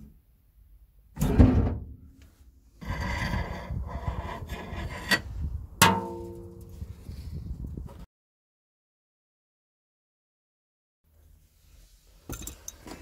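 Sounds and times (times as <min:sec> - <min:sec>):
metal tools clattering and scraping: 0:12.3 - 0:13.0.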